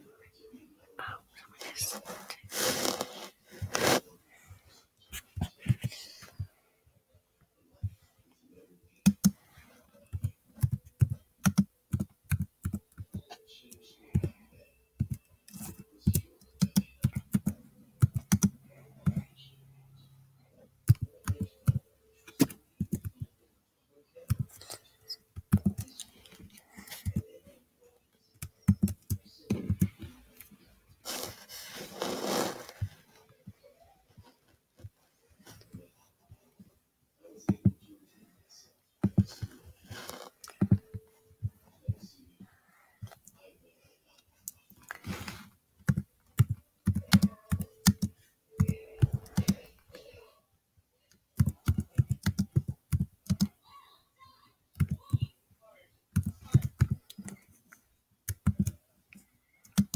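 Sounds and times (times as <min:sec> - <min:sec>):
keyboard typing: 0:09.0 - 0:09.4, 0:10.1 - 0:14.4, 0:15.0 - 0:19.3, 0:20.8 - 0:23.3, 0:25.4 - 0:26.0, 0:28.4 - 0:30.0, 0:45.8 - 0:49.7, 0:51.4 - 0:53.5, 0:58.3 - 0:58.8, 0:59.6 - 0:59.9.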